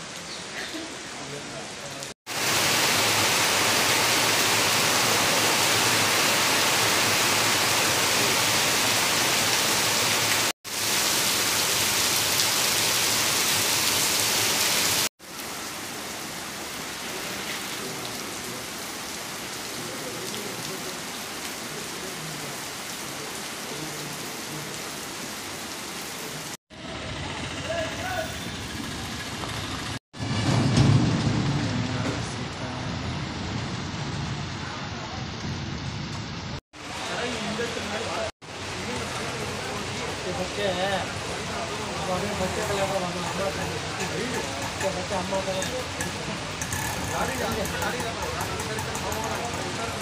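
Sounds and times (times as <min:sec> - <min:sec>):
heavy rain falling: 0:00.0 - 0:26.6, 0:27.7 - 0:50.0.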